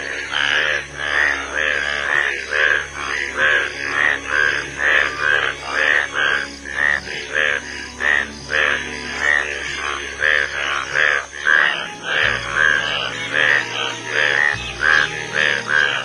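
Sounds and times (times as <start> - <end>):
bullfrogs croaking: 0.0 - 16.0.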